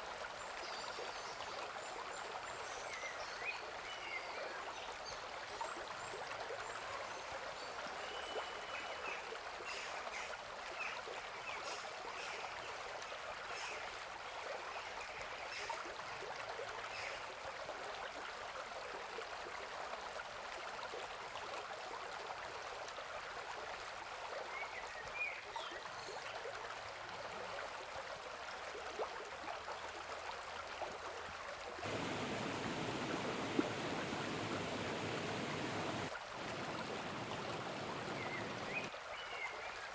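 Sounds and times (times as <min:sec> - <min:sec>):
river running over rocks: 0:31.8 - 0:38.9.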